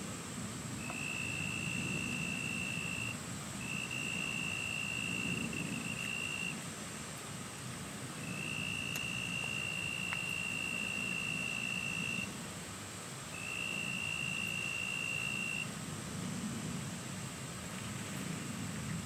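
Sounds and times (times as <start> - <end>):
high-pitched insect trill: 0.8 - 6.6, 8.2 - 12.4, 13.3 - 15.7.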